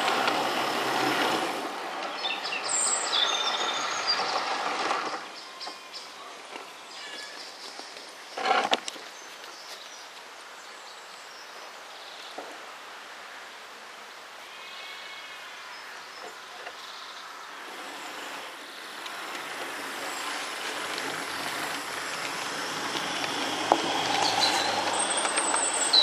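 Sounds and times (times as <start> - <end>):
model train wheels and motor: 0.0 - 9.0, 17.5 - 26.0.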